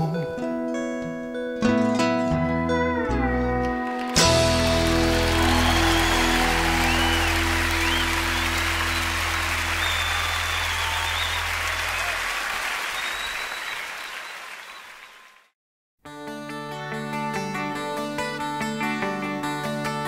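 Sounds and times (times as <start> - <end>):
guitar music: 0.0 - 9.7, 16.1 - 20.0
audience applause: 3.8 - 15.5.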